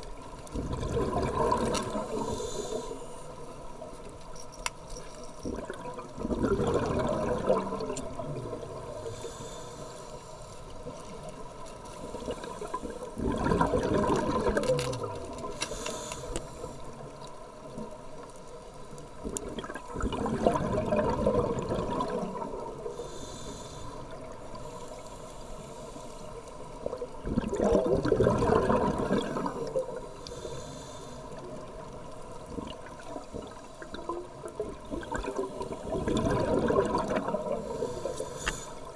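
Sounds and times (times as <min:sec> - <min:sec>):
exhaled bubbles underwater: 0:00.0 - 0:03.0, 0:05.4 - 0:09.3, 0:12.0 - 0:15.6, 0:19.2 - 0:23.2, 0:26.6 - 0:38.9.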